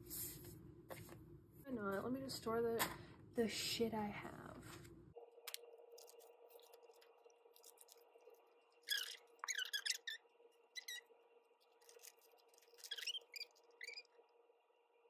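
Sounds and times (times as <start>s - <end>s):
plastic sleeves squeaking and rustling: 8.8s - 14.2s.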